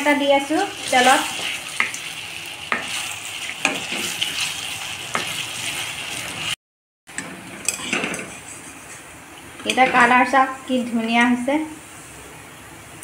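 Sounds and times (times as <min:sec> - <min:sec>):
deep-frying sizzle: 0:00.0 - 0:06.6.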